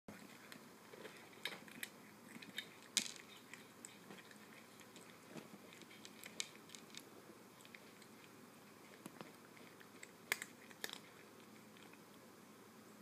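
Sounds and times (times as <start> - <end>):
cat chewing dry kibble: 0.1 - 12.2.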